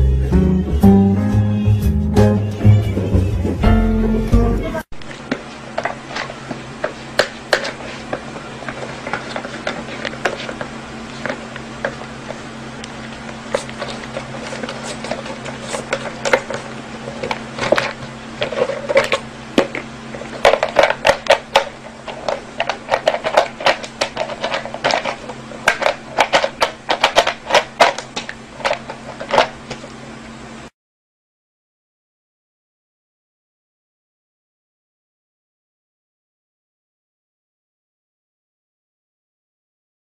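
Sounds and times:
steady low hum: 0.0 - 30.7.

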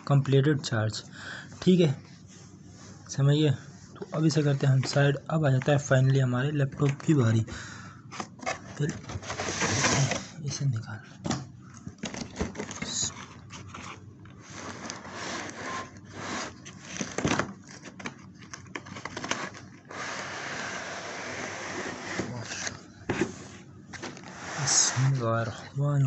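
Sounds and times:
cardboard scraping and rustling: 8.1 - 10.4, 12.0 - 25.5
plastic wrap rustling: 11.9 - 19.9.

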